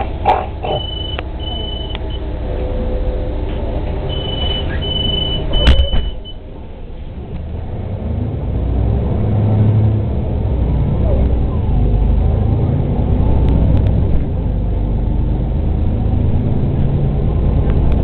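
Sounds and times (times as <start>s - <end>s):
bus doors shutting: 0.0s - 2.8s, 3.4s - 7.6s
bus engine pulling away: 0.0s - 18.0s
bus door warning beeps: 0.6s - 2.3s, 4.1s - 6.5s.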